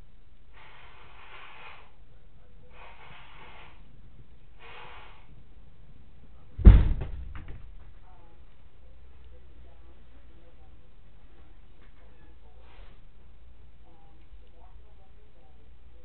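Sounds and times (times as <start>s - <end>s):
person blowing nose: 0.5s - 2.0s, 2.7s - 3.9s, 4.6s - 5.3s
loud low bang: 6.6s - 7.8s.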